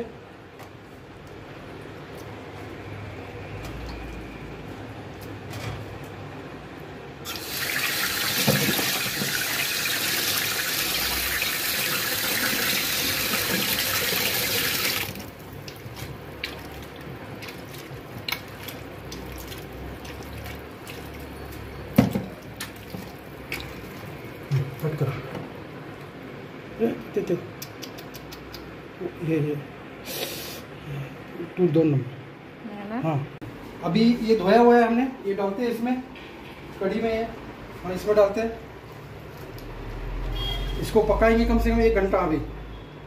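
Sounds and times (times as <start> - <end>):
hands squishing wet pieces: 0.6 - 5.4, 15.1 - 25.2.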